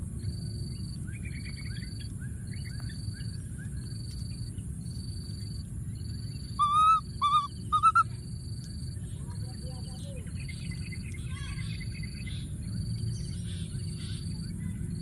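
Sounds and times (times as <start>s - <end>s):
faint chirps: 5.4s - 15.0s
baby monkey crying: 6.6s - 8.0s.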